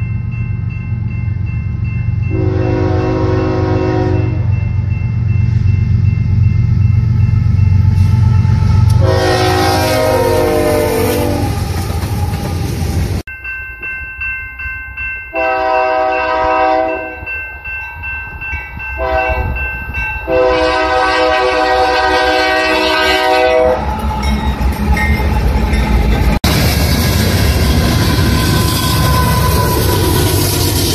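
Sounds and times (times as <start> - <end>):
locomotive rumble: 0.0 - 13.3, 20.3 - 30.9
crossing bell ringing: 0.0 - 30.9
locomotive air horn blasts: 2.3 - 4.5, 8.0 - 11.6, 15.4 - 17.2, 19.0 - 19.6, 20.3 - 23.9
train wheels clattering: 10.9 - 13.2.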